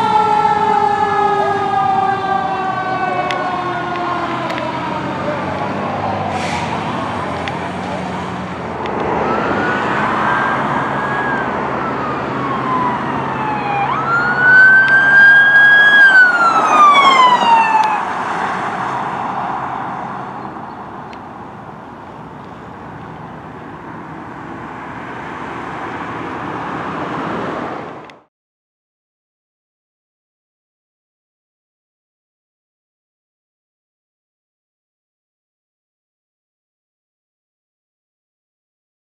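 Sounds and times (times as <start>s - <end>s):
electronic siren wailing: 0.0s - 5.6s, 9.0s - 18.2s
traffic noise: 0.0s - 28.3s.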